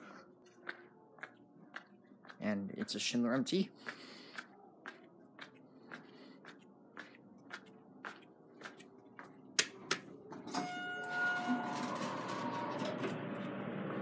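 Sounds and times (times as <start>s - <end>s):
footsteps on tile floor: 0.5s - 9.5s.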